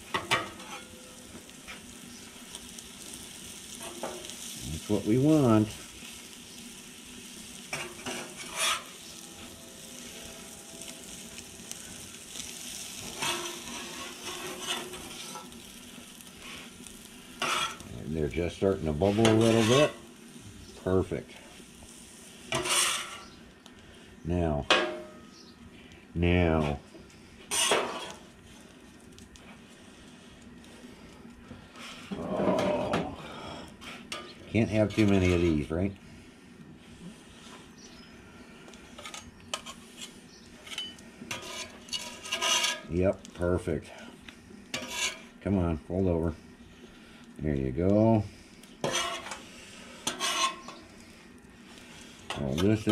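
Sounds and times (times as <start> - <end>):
food sizzling on griddle: 0.0 - 52.9
metal spatula scraping griddle: 0.1 - 1.9, 6.8 - 17.9, 18.7 - 20.2, 21.3 - 23.4, 27.4 - 28.8, 31.7 - 35.7, 38.6 - 43.0, 44.7 - 45.4, 48.8 - 52.9.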